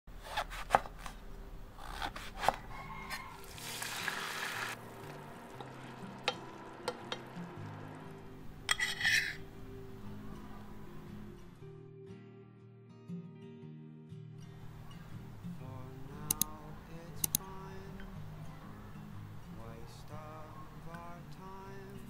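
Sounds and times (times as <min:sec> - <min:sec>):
knife chopping on wooden board: 0:00.2 - 0:01.2, 0:01.9 - 0:03.2
wooden spoon stirring in pan: 0:02.7 - 0:07.3
sizzling hiss: 0:03.3 - 0:10.8
clinks and scrapes: 0:08.7 - 0:09.4.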